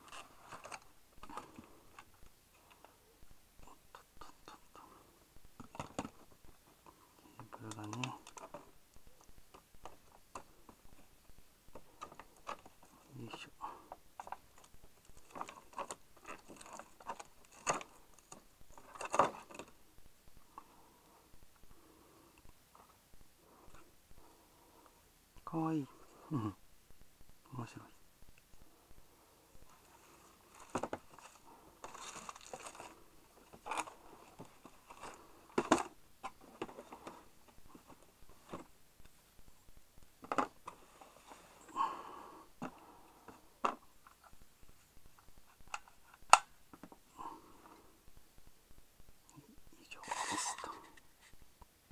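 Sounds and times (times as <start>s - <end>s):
plastic packaging crinkling: 30.4s - 35.9s.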